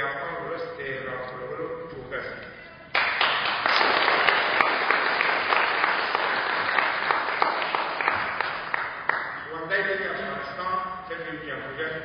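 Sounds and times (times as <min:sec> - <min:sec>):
audience applauding: 0:02.9 - 0:09.5.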